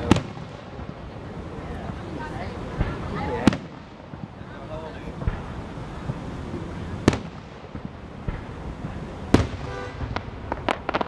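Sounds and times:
fireworks booming: 0:00.0 - 0:11.0
fireworks crackling pops: 0:00.0 - 0:11.0.

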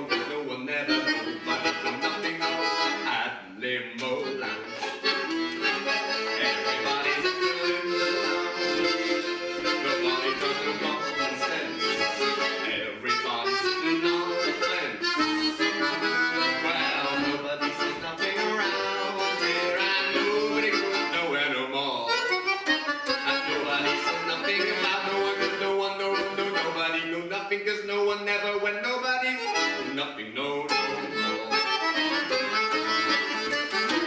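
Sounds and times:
accordion playing a tune: 0:00.0 - 0:03.4, 0:04.0 - 0:34.0.

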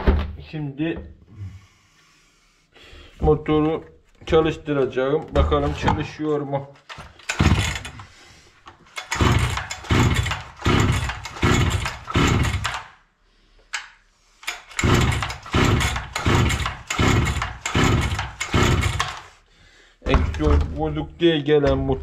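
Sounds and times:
chainsaw pull-start whirr: 0:06.9 - 0:13.0, 0:14.4 - 0:19.4.

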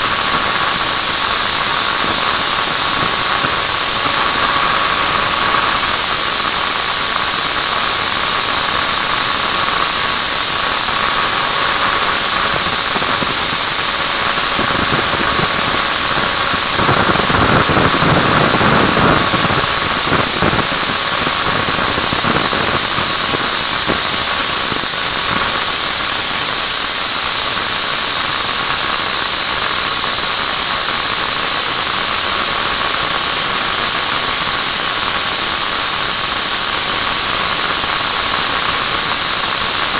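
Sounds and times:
angle grinder high whine: 0:00.0 - 0:39.9.

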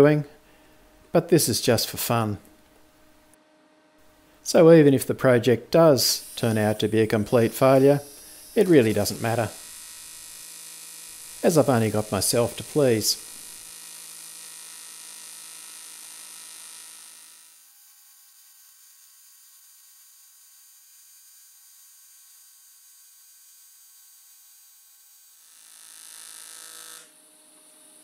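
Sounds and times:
faint steady hum: 0:00.0 - 0:10.4
welding arc buzzing: 0:05.8 - 0:18.3, 0:24.8 - 0:28.0.

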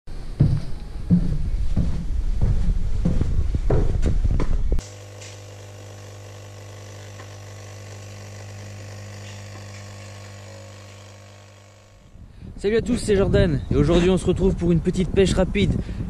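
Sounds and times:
footsteps on wooden stairs: 0:00.2 - 0:05.4
coffee machine pump humming: 0:04.8 - 0:12.2.

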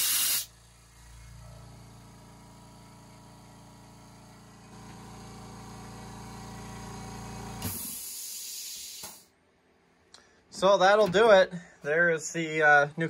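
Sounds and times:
hiss of released air: 0:00.0 - 0:00.5, 0:07.6 - 0:09.3
air compressor humming: 0:00.0 - 0:09.3.

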